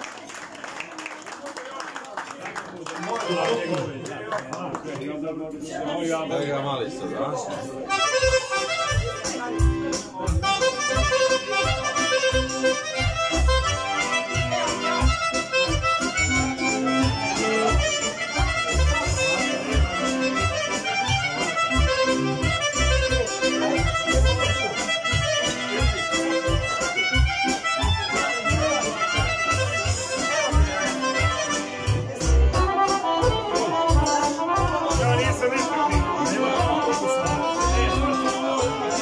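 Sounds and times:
accordion playing folk tune: 0:03.1 - 0:04.0, 0:07.7 - 0:39.0
steady bass beat: 0:30.5 - 0:39.0.

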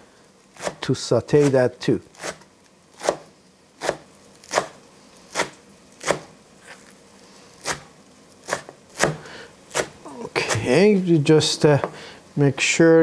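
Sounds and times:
knife chopping on wooden board: 0:00.6 - 0:00.8, 0:03.0 - 0:03.2, 0:03.8 - 0:06.3, 0:07.6 - 0:10.7.

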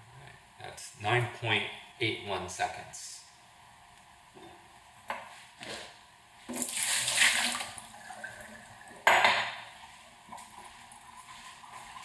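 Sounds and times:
water pouring into metal sink: 0:06.6 - 0:09.0
glass cup clinking on countertop: 0:09.0 - 0:09.6.

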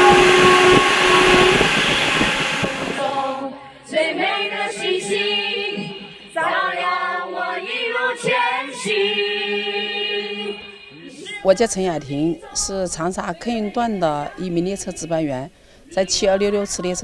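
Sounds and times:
train horn chord: 0:00.0 - 0:03.5
passing train rushing: 0:00.0 - 0:03.6
group singing into microphones: 0:00.0 - 0:17.0.

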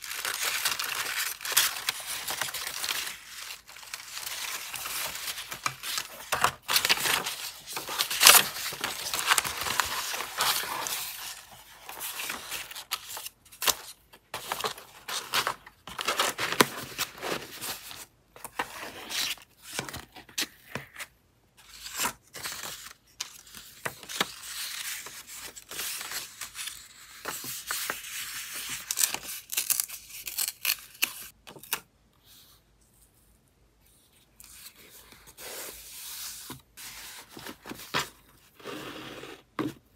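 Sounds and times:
paper rustling and crinkling: 0:00.0 - 0:20.9.

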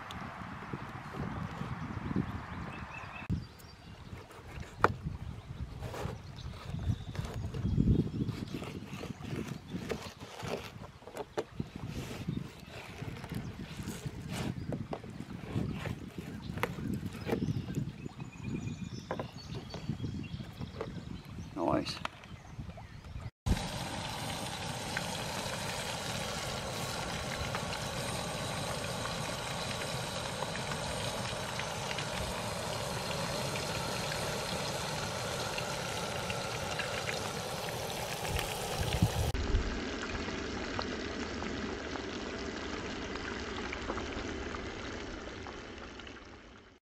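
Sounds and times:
oil sizzling in skillet: 0:23.5 - 0:39.4.

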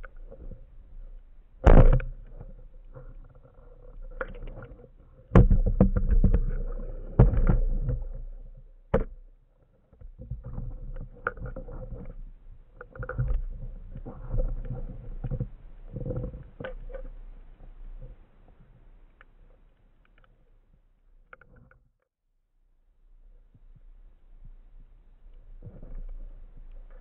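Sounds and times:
underwater rumbling of water: 0:00.0 - 0:09.4, 0:10.0 - 0:20.3, 0:23.8 - 0:27.0
sharp knocks and clicks: 0:05.3 - 0:08.2.

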